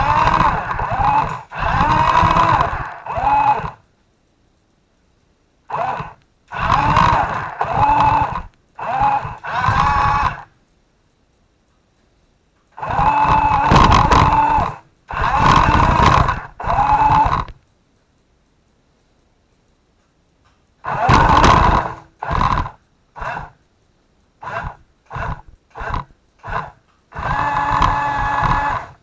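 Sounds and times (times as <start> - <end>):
toy truck motor whining: 0.0 - 3.8, 5.7 - 10.5, 12.8 - 17.6, 20.8 - 23.6, 24.4 - 29.0.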